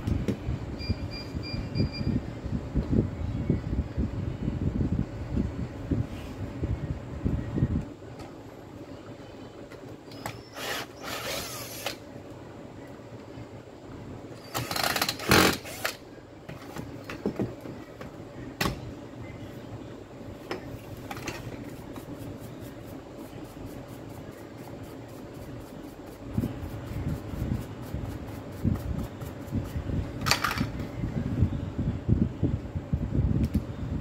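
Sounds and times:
steady hum: 0.0 - 34.0.

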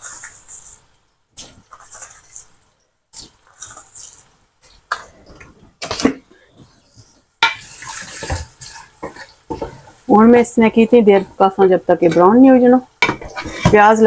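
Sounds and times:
wooden spoon stirring: 0.0 - 14.0
onions sizzling in oil: 7.4 - 14.0.

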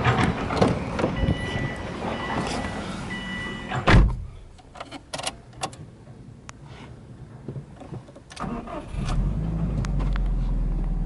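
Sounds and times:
car warning tone beeps: 1.2 - 3.8
car door shutting thud: 3.8 - 4.3.

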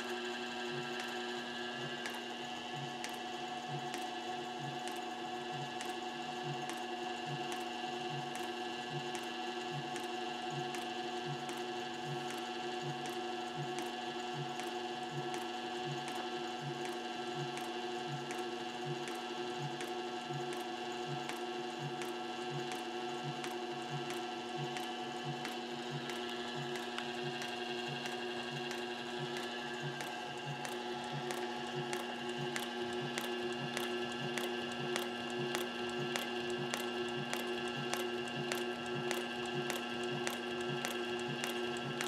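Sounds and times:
motor humming: 0.0 - 42.0
sewing machine stitching: 19.0 - 42.0.

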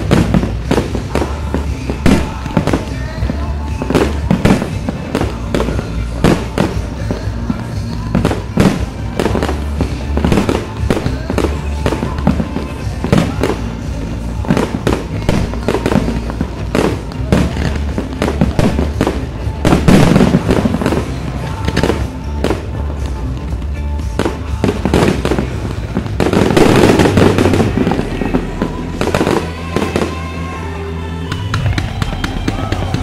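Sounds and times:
fireworks bangs and crackles: 0.0 - 33.0.

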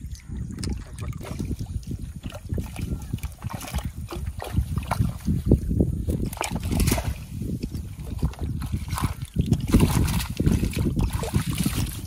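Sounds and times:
wind rumbling on microphone: 0.0 - 12.0
water splashing from net: 8.0 - 12.0.

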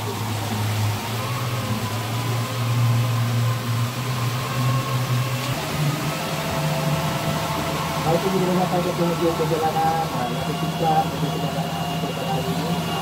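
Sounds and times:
boat engine humming: 0.0 - 13.0
water rushing past hull: 0.0 - 13.0.

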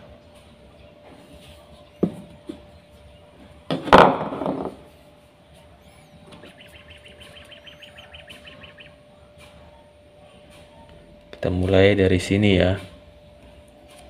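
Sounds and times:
steady hum: 0.0 - 14.0
small bird chirping: 5.5 - 9.0.

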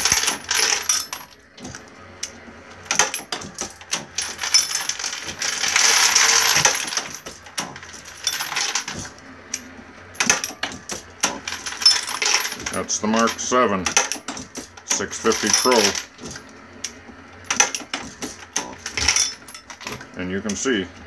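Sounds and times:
reloading press clicking and clinking: 0.0 - 1.4, 2.9 - 9.0, 10.2 - 16.2, 17.4 - 20.6
rattling rush of cases: 3.0 - 9.2, 10.6 - 13.6, 14.3 - 16.4, 17.9 - 20.0.

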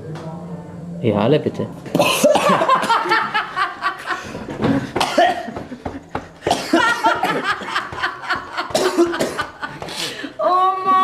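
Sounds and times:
people laughing: 2.0 - 10.1.

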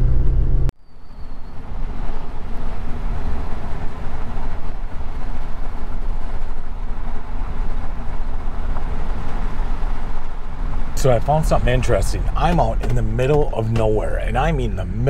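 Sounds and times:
tyres rumbling on gravel: 2.7 - 15.0
engine running: 10.8 - 15.0.

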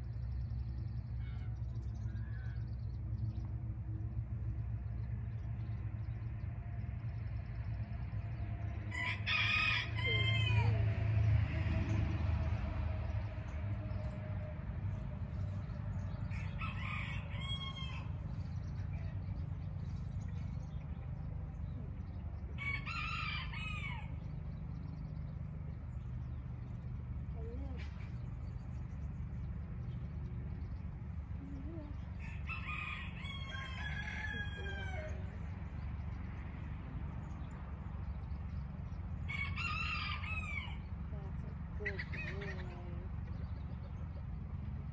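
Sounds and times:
steady low rumble: 0.0 - 44.9
rooster crowing: 8.9 - 11.1, 16.0 - 18.3, 22.5 - 24.2, 32.2 - 35.4, 39.2 - 40.9.

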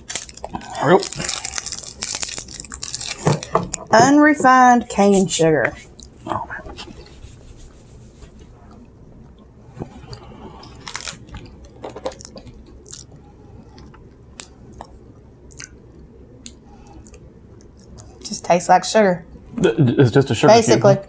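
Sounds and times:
people chewing hard sugar: 0.0 - 3.8, 8.4 - 18.3.

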